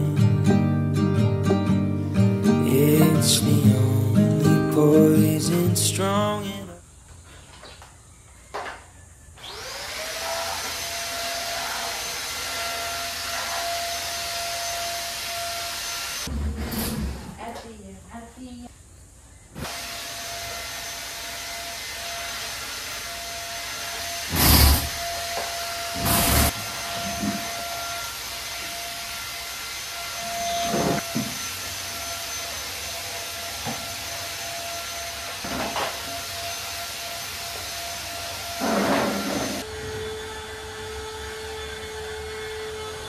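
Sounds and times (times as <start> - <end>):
vacuum cleaner running: 9.4 - 16.9, 19.6 - 43.0.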